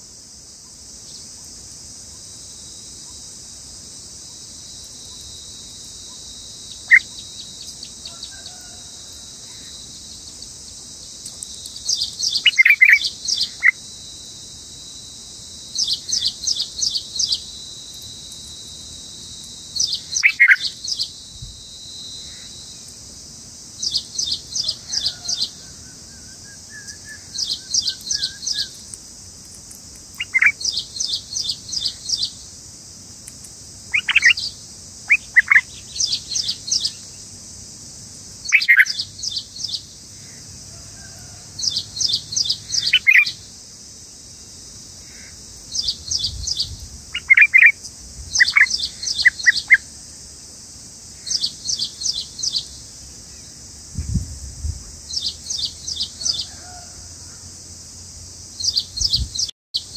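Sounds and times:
insects droning: 0:00.0 - 0:59.9
bulbuls chirping: 0:11.7 - 0:13.8, 0:19.8 - 0:21.1, 0:30.1 - 0:32.4, 0:33.9 - 0:37.0, 0:42.0 - 0:43.4, 0:45.2 - 0:47.8.

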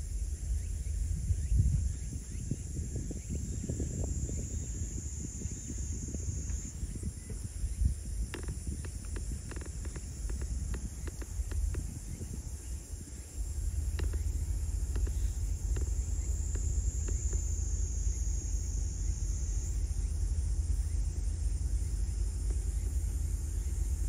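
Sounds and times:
insects humming: 0:00.0 - 0:24.0
low rumble: 0:00.0 - 0:24.0
sharp clicks: 0:08.3 - 0:11.9, 0:13.9 - 0:17.5.

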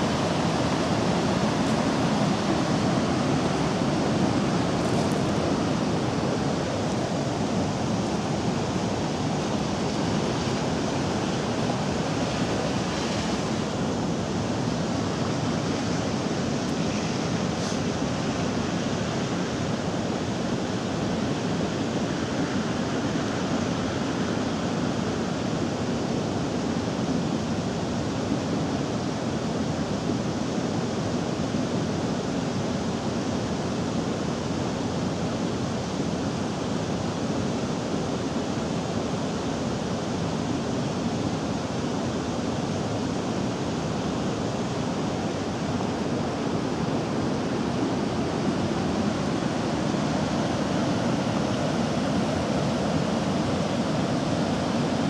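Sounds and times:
river rushing over rocks: 0:00.0 - 0:55.0.

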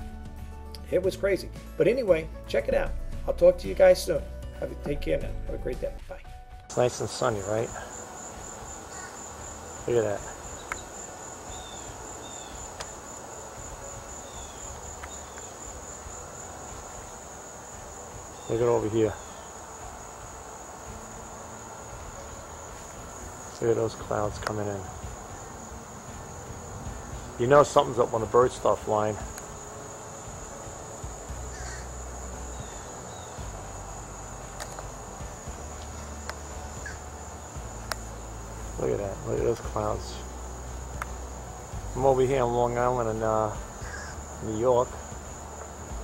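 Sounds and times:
crickets trilling: 0:06.7 - 0:46.0
faint clicks: 0:10.6 - 0:10.9.

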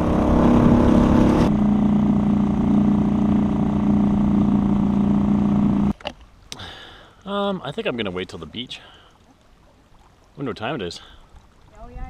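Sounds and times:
small boat motor running: 0:00.0 - 0:05.9.

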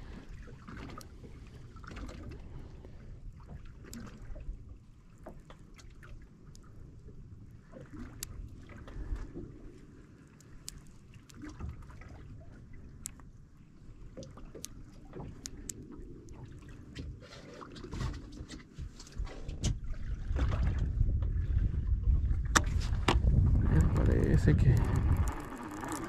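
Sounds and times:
water lapping against boat hull: 0:00.0 - 0:26.0
low rumble: 0:20.0 - 0:26.0
small splashes: 0:24.8 - 0:26.0.

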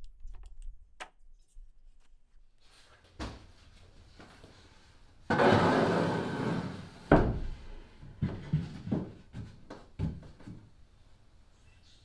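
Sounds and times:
plywood scraping across wood: 0:05.3 - 0:07.2.

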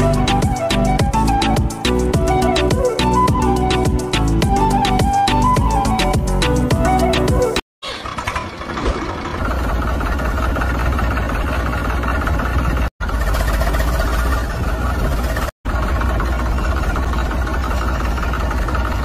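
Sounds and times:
tractor engine starting and idling: 0:07.8 - 0:19.0.

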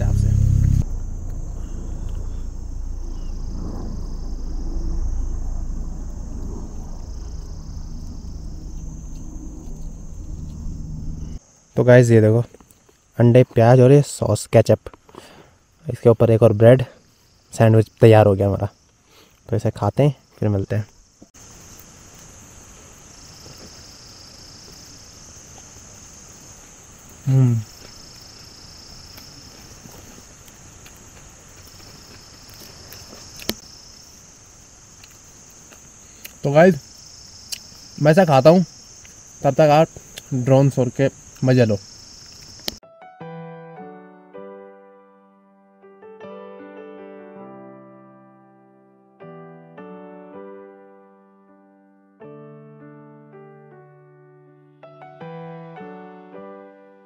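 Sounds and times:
wind rumbling on microphone: 0:00.0 - 0:11.4
insects chirring: 0:00.0 - 0:42.8.

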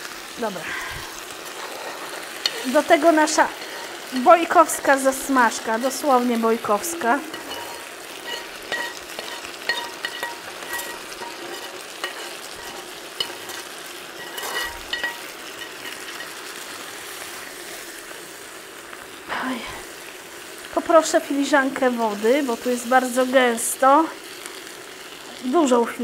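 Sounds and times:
food sizzling in a pan: 0:00.0 - 0:26.0
utensil scraping and knocking a pan: 0:07.3 - 0:16.4.

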